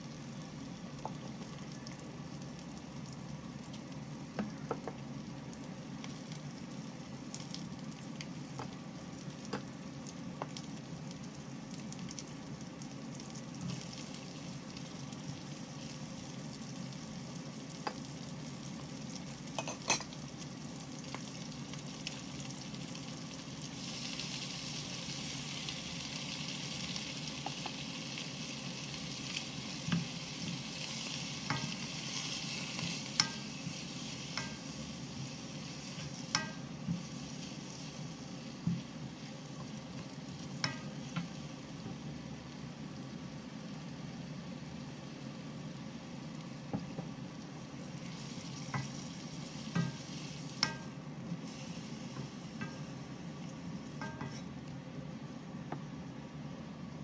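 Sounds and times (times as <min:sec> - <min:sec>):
food sizzling in oil: 0:00.0 - 0:54.6
wooden spatula stirring food: 0:29.2 - 0:42.3, 0:47.9 - 0:54.6.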